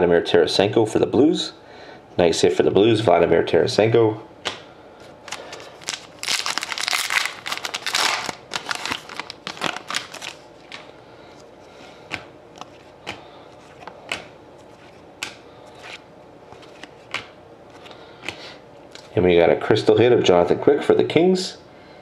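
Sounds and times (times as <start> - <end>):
cards flicked with snaps: 4.4 - 4.7, 13.8 - 14.3, 15.2 - 15.4, 16.8 - 17.4
wrapper tearing and crinkling: 5.2 - 10.8.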